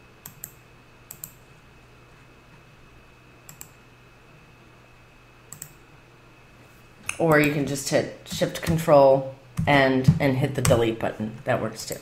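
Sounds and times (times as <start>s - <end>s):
faint steady hum: 0.0s - 12.0s
computer mouse clicks: 0.2s - 1.4s, 3.5s - 3.8s, 5.5s - 5.8s.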